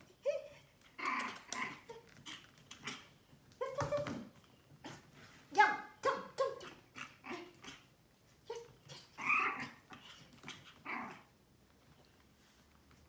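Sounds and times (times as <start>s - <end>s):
puppy yapping and growling: 6.4s - 8.0s, 8.8s - 11.4s.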